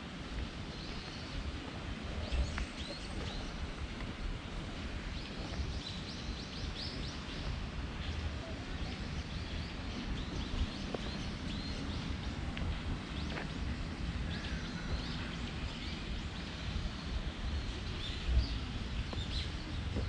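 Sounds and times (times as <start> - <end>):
steady low rumble: 0.0 - 20.0
small birds chirping: 4.8 - 20.0.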